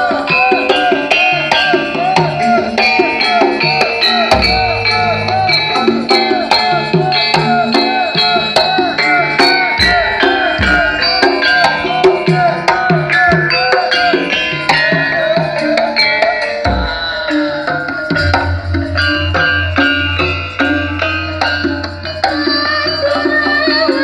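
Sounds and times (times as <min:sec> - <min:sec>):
loud music with hand drums: 0:00.0 - 0:24.0.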